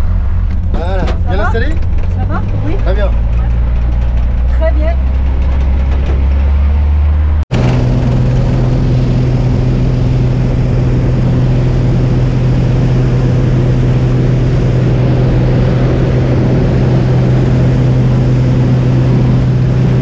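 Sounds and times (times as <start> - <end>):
aircraft engine drone: 5.0 - 20.0.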